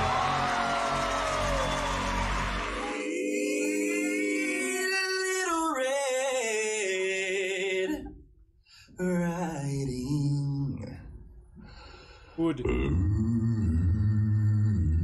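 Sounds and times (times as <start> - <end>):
male vocal group singing harmony: 2.6 - 8.1.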